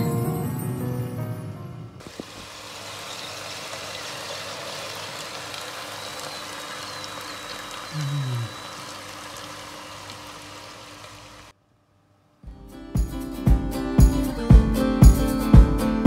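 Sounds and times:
air fryer fan rushing air: 2.0 - 11.5.

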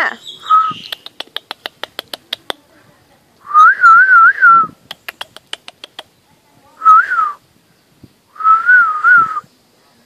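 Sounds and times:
sharp clicks: 0.8 - 2.6, 4.8 - 6.1.

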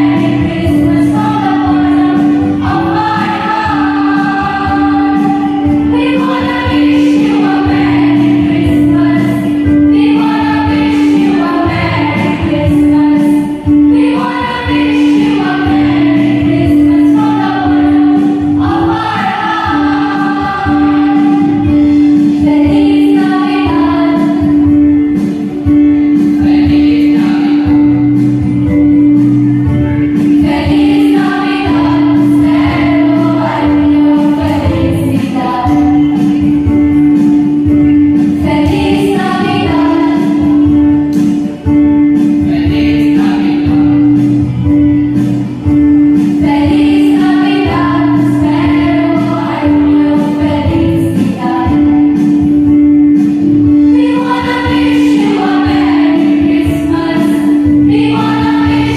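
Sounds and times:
choir singing a carol: 0.0 - 24.5, 30.2 - 36.3, 38.5 - 40.7, 46.4 - 52.2, 53.8 - 58.9.

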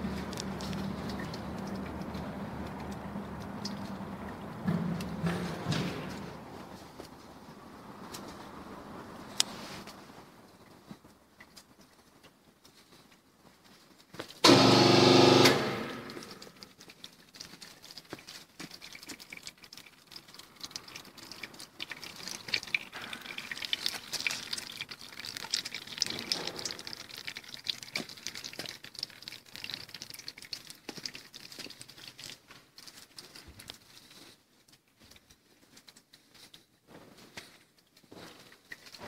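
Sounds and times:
fine crackling and ticking: 16.3 - 36.8.

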